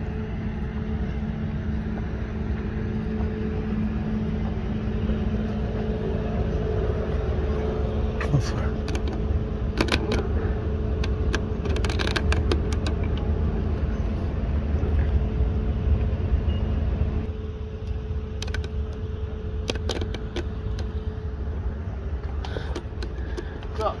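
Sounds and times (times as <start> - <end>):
vehicle engines idling: 0.0 - 24.0
sharp clicks and knocks: 8.7 - 10.3, 11.0 - 13.3, 18.4 - 19.0, 19.6 - 21.0, 22.2 - 23.7.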